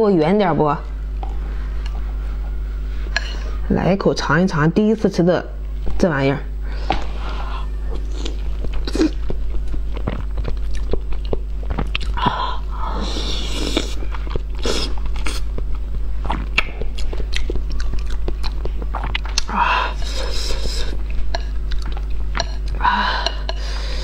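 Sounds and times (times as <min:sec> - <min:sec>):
steady low hum: 0:00.0 - 0:24.0
woman chewing food: 0:06.9 - 0:24.0
wet mouth smacks and clicks: 0:16.5 - 0:17.6.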